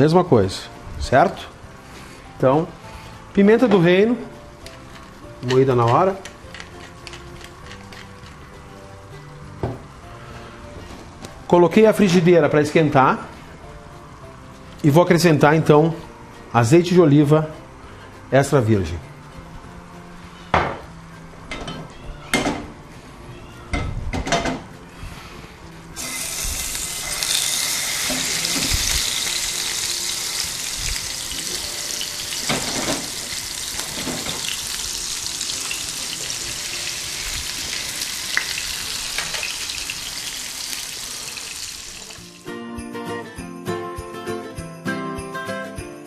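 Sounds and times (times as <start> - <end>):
fish frying in oil: 26.0 - 42.2.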